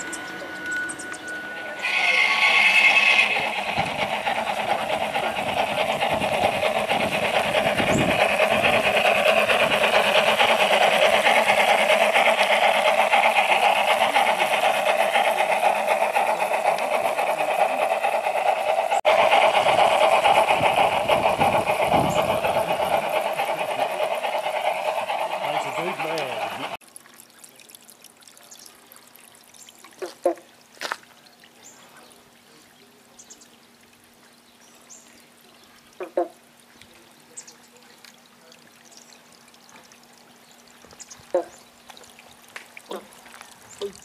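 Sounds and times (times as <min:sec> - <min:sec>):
model locomotive clattering: 0:00.0 - 0:26.8.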